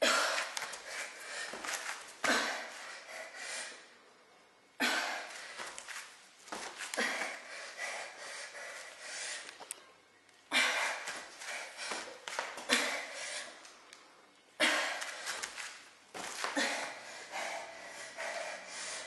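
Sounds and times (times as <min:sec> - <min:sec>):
woman panting: 0:00.0 - 0:03.9, 0:06.8 - 0:09.6, 0:10.5 - 0:13.6, 0:16.4 - 0:19.0.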